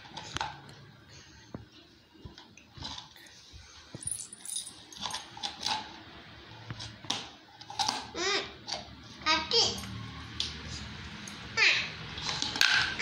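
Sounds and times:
metal bangles jingling: 0:04.0 - 0:05.4.

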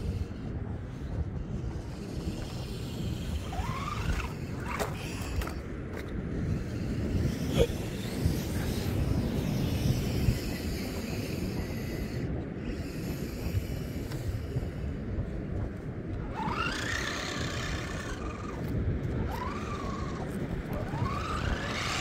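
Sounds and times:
model car motor whining: 0:00.0 - 0:14.4, 0:16.1 - 0:22.0
steady low rumble: 0:00.0 - 0:22.0.

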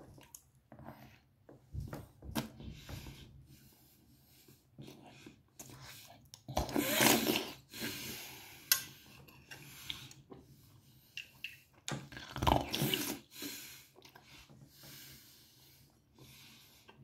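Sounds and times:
rough slurp: 0:05.6 - 0:10.2, 0:12.3 - 0:14.2.

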